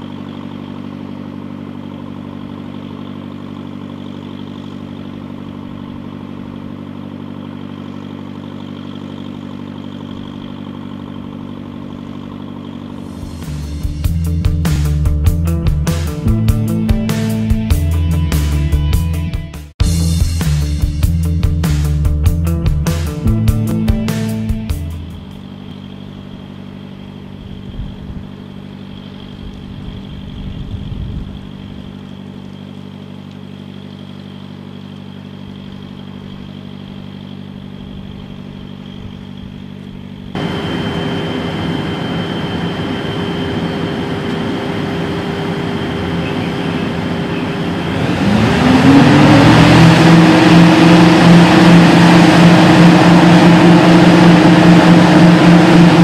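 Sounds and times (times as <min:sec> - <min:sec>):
excavator diesel engines revving: 0:00.0 - 0:18.7, 0:40.3 - 0:56.0.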